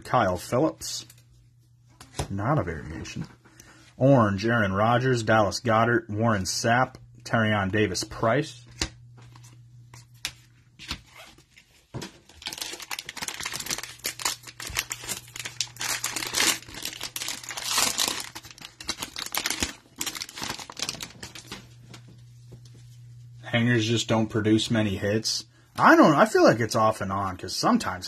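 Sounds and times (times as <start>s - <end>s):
wrapper crinkling and tearing: 12.2s - 21.7s.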